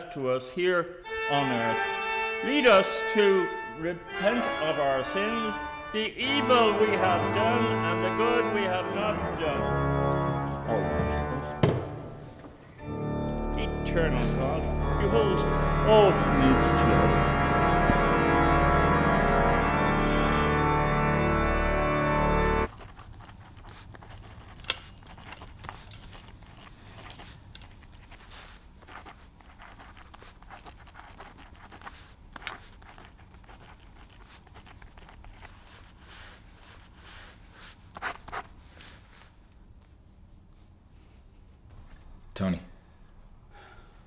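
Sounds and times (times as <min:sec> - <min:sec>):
music of sustained chords: 0:01.1 - 0:22.7
pen scratching on paper: 0:22.6 - 0:39.0.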